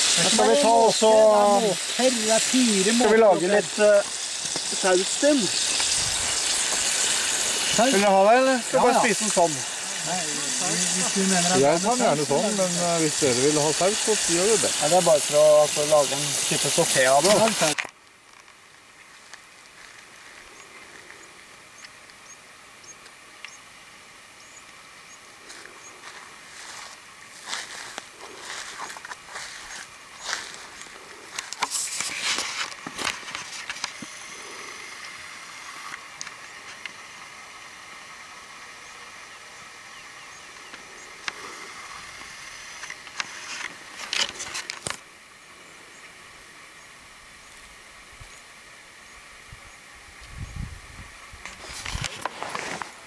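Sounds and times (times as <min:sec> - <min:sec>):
faint outdoor hiss: 0:00.0 - 0:53.0
rustle: 0:00.0 - 0:53.0
small bird chirping: 0:20.5 - 0:23.7, 0:24.3 - 0:26.0, 0:38.8 - 0:41.2.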